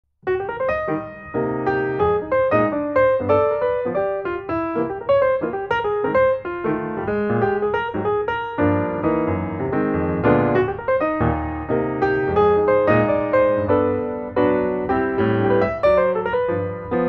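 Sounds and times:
piano music: 0:00.2 - 0:17.0.

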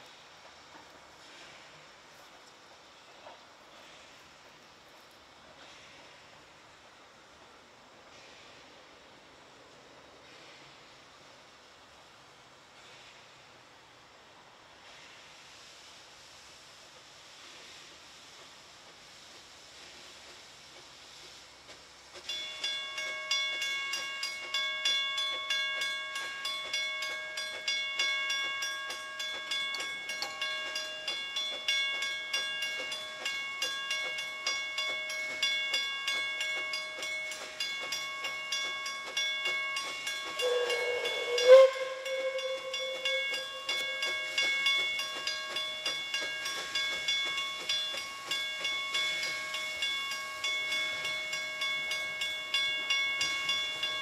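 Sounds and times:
steam hissing: 0:00.0 - 0:54.0
level crossing bell ringing: 0:22.4 - 0:54.0
steam whistle blast: 0:40.3 - 0:44.6.

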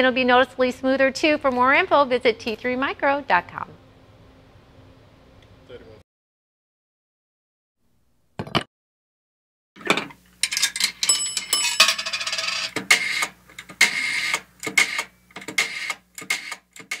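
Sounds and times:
mechanical clacks and clatter: 0:11.9 - 0:17.0.

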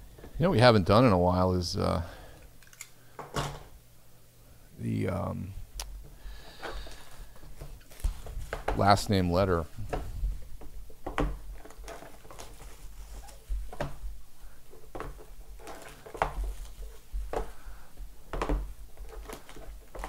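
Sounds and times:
handling noise: 0:05.9 - 0:20.0
cardboard boxes knocking and tapping: 0:14.8 - 0:20.0.

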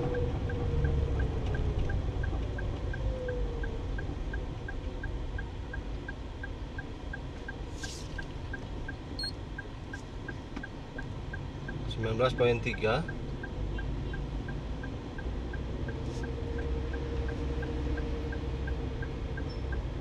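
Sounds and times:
engine and road rumble: 0:00.0 - 0:20.0
brief hiss: 0:07.7 - 0:08.2
faint regular ticking: 0:08.2 - 0:19.9.

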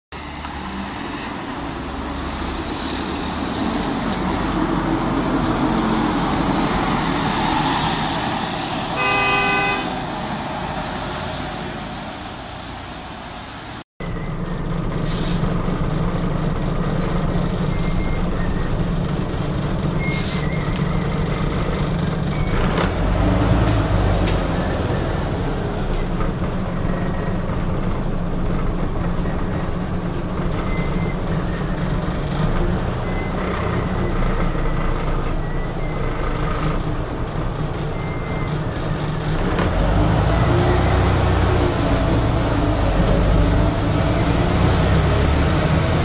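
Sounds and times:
bus diesel engine passing: 0:00.1 - 0:46.0
bus engine heard on board: 0:00.1 - 0:46.0
vehicle horn: 0:08.9 - 0:10.0.

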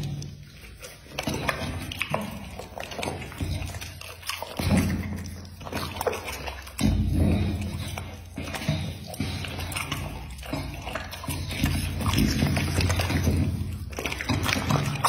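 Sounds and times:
dog chewing meat: 0:00.0 - 0:15.0
wet smacking mouth noises: 0:00.0 - 0:15.0
dog grunting: 0:06.8 - 0:13.4.

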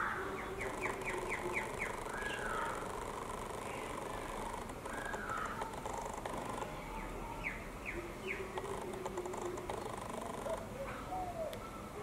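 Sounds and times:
birdsong: 0:00.0 - 0:12.0
faint high insect buzz: 0:00.6 - 0:07.1, 0:08.5 - 0:10.7.

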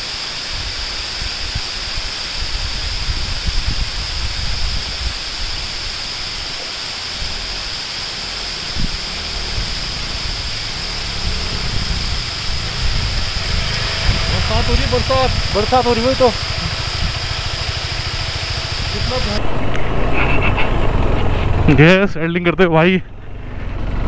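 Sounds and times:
high hiss: 0:00.0 - 0:19.4
low rumble: 0:08.5 - 0:21.8.

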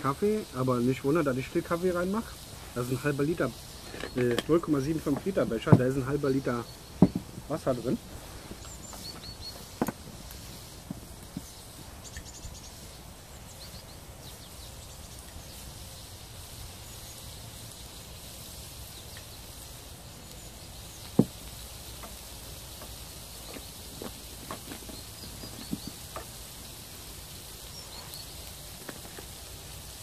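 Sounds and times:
bacon sizzling in a pan: 0:00.0 - 0:30.0
knock: 0:07.0 - 0:07.3.

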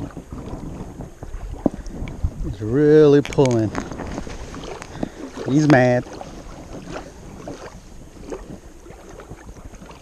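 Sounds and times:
waves lapping on rocks: 0:00.0 - 0:10.0
wind buffeting microphone: 0:00.0 - 0:10.0
light clicks and taps: 0:03.2 - 0:04.0.

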